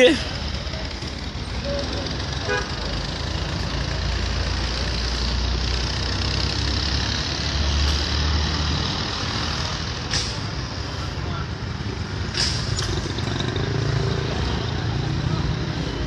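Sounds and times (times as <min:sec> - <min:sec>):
motorcycle engines idling: 0:00.0 - 0:08.0
street traffic: 0:00.0 - 0:16.0.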